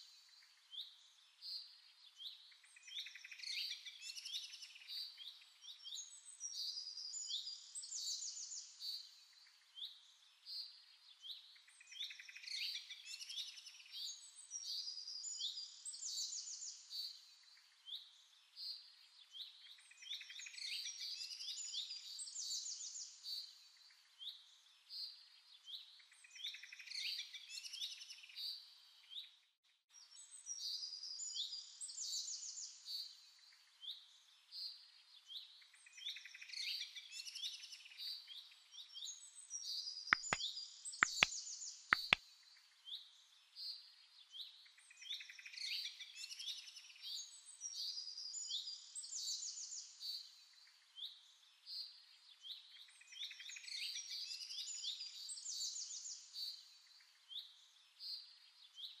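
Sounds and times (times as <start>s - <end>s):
birds chirping: 40.2s - 40.4s, 41.0s - 41.3s, 42.0s - 42.2s
sharp clicks: 40.2s - 40.4s, 41.0s - 41.3s, 42.0s - 42.2s.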